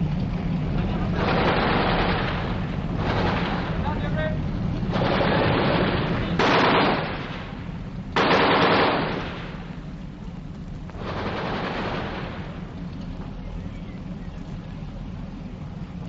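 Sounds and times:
machine-gun fire bursts: 0:01.2 - 0:03.8, 0:04.9 - 0:07.6, 0:08.2 - 0:09.6, 0:11.0 - 0:12.7.

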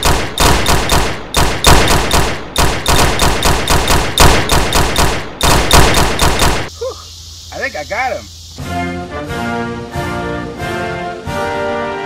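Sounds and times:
automatic gunfire bursts: 0:00.0 - 0:06.7.

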